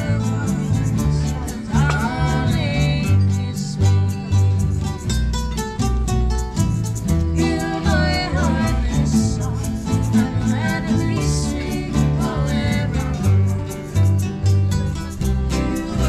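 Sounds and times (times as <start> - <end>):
person singing: 0.0 - 4.6, 7.3 - 13.8, 15.5 - 16.0
bass line: 0.0 - 16.0
guitar strummed: 0.0 - 16.0.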